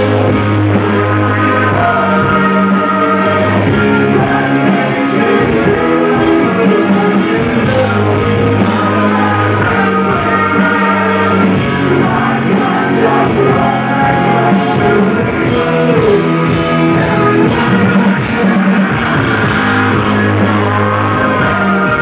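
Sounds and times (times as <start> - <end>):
live rock band: 0.0 - 22.0
man singing into microphone: 0.0 - 22.0.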